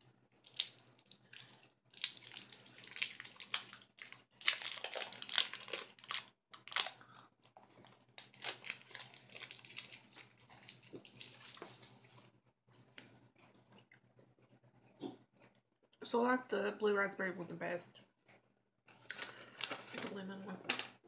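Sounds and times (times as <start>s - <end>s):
candy wrapper crinkling: 0.4s - 12.3s.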